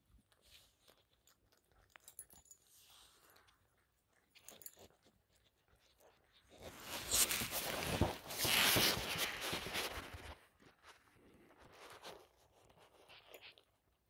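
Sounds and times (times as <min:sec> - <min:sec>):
cat chewing: 0:00.0 - 0:06.6
fur rustling against phone: 0:06.6 - 0:13.5.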